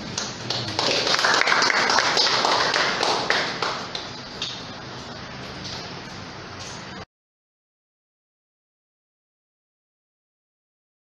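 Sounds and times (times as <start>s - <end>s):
audience clapping: 0.0s - 4.7s.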